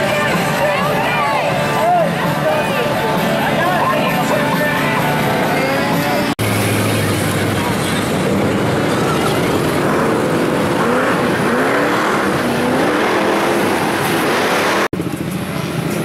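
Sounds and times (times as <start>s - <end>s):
truck engine running under load: 6.3s - 16.0s
rush of mud and water: 6.4s - 14.9s.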